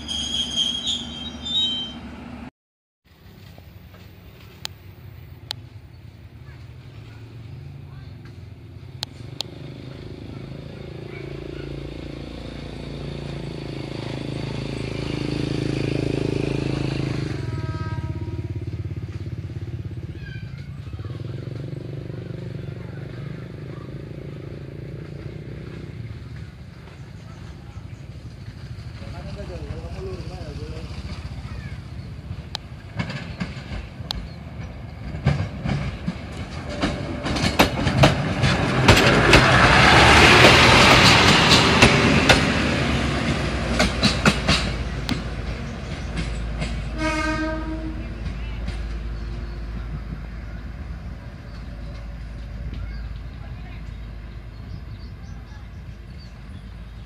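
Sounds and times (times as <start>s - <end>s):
vehicle engine droning: 3.5s - 57.0s
railcar wheel clicks on rail joints: 32.5s - 39.8s, 43.3s - 47.0s.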